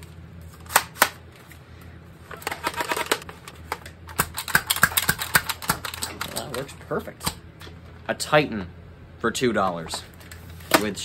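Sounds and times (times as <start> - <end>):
toy blaster plastic clicks and rattles: 2.4 - 3.2, 4.1 - 6.7.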